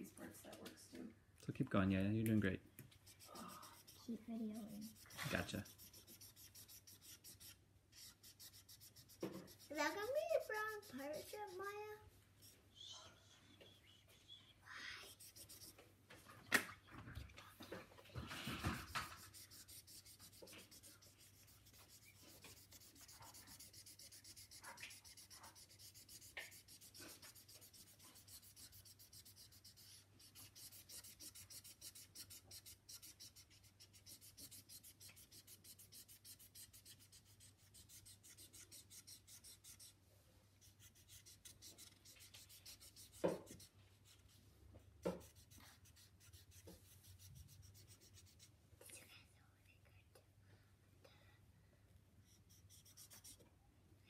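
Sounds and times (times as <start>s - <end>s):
marker scratching on paper: 3.0s - 12.6s, 15.0s - 15.8s, 18.2s - 40.0s, 40.6s - 44.4s, 45.1s - 48.5s, 52.2s - 53.4s.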